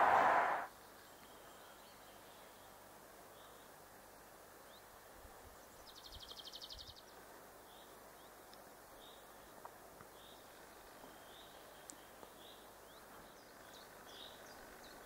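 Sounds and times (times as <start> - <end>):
songbird trill: 10.1 - 15.0.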